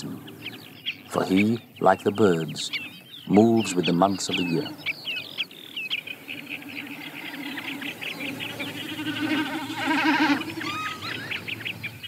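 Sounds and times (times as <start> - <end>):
high bird calls: 0.0 - 12.0
snipe drumming bleating hum: 8.6 - 11.0.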